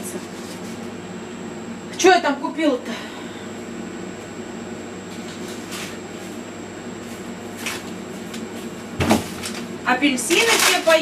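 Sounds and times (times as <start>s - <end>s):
appliance electrical hum: 0.0s - 11.0s.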